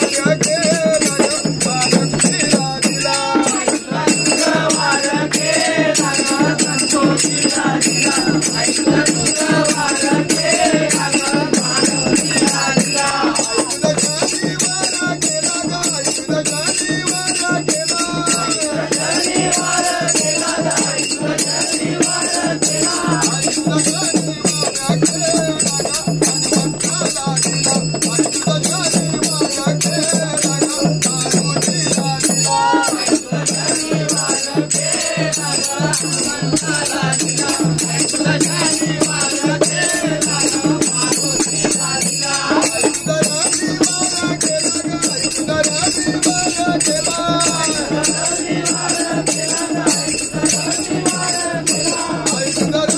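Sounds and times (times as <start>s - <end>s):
hand drums beating: 0.0s - 52.9s
hand percussion: 0.0s - 52.9s
men singing together: 0.0s - 52.9s.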